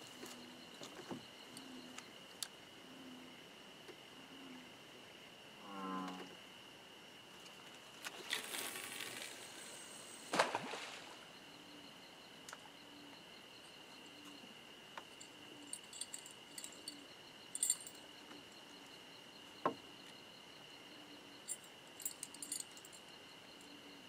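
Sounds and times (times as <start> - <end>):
cricket trill: 0.0 - 24.0
fishing line hissing off reel: 8.1 - 11.2
splash in water: 10.3 - 11.2.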